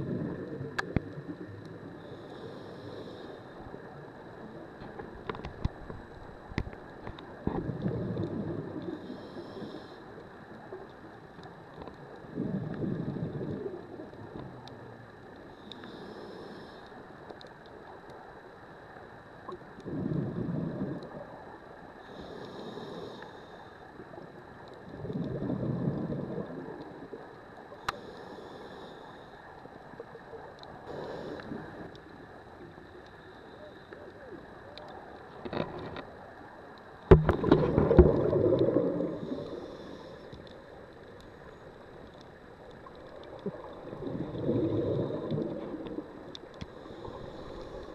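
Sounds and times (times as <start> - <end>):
hissing inhale: 2.0 - 3.8, 8.9 - 10.2, 15.5 - 17.1, 22.0 - 23.8, 27.8 - 29.5, 30.8 - 31.9, 39.0 - 41.6, 46.4 - 47.9
bubbling exhale underwater: 7.4 - 9.0, 12.4 - 14.6, 19.8 - 21.3, 24.9 - 26.8, 37.1 - 40.0, 43.3 - 47.9.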